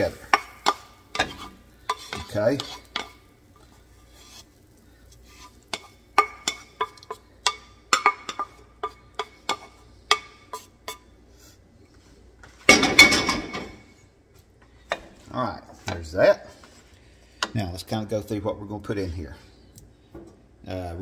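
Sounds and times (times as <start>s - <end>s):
cookware clattering: 5.7s - 11.0s, 12.6s - 13.9s
wooden spatula knocking on skillet: 5.8s - 11.0s.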